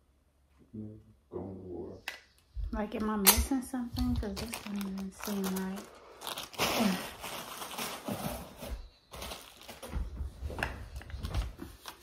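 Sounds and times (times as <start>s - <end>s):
packaging rustling: 4.1s - 12.0s.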